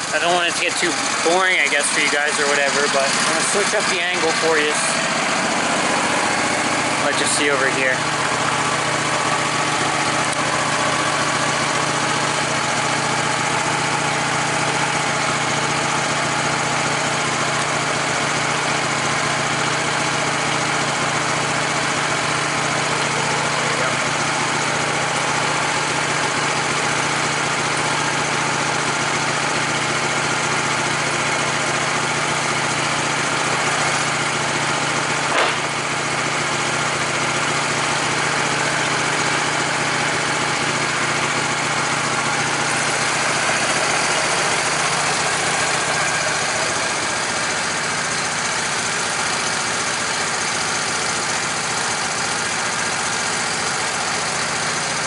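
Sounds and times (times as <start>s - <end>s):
gasoline engine running: 0.0s - 55.0s
short sharp click: 35.3s - 35.6s.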